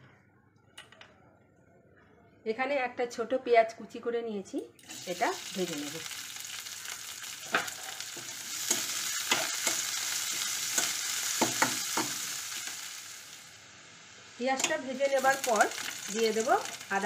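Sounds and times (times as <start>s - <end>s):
onion sizzling in oil: 4.8s - 17.0s.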